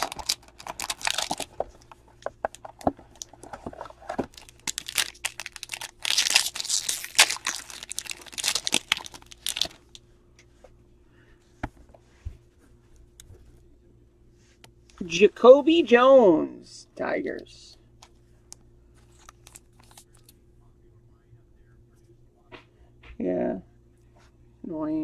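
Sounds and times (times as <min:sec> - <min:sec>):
plastic wrapper crinkling: 0:00.0 - 0:10.0, 0:19.0 - 0:20.3
cards being handled: 0:19.0 - 0:20.4.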